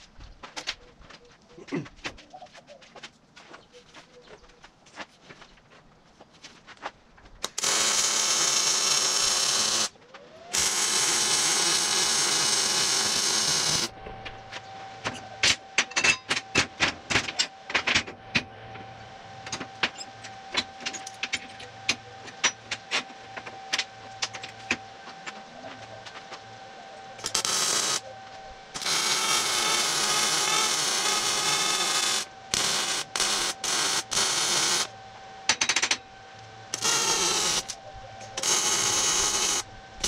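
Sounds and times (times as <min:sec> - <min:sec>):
steady hum: 0:05.8 - 0:40.0
electric welding hiss: 0:07.4 - 0:09.9, 0:10.5 - 0:13.9, 0:27.2 - 0:28.1, 0:28.7 - 0:34.9, 0:36.7 - 0:39.7.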